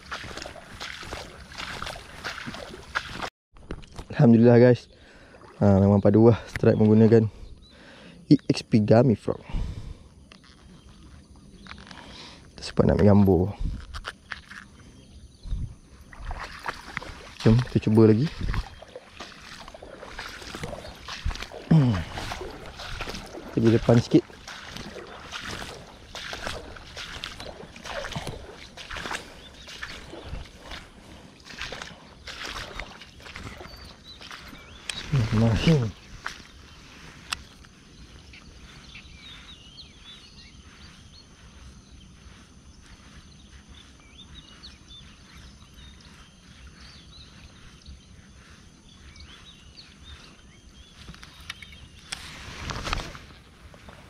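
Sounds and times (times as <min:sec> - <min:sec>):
footsteps splashing through water: 0:00.0 - 0:03.8, 0:16.0 - 0:40.2
small birds chirping: 0:00.0 - 0:54.0
wind rumble on microphone: 0:13.4 - 0:14.1, 0:15.2 - 0:40.5.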